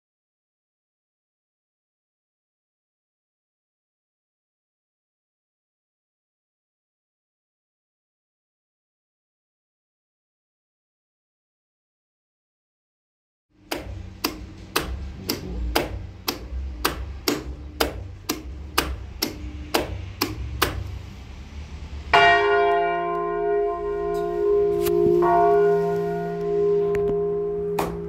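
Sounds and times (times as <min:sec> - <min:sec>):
sharp regular clicking: 0:13.6 - 0:21.1
low hum: 0:13.6 - 0:28.0
church bell ringing: 0:22.1 - 0:28.0.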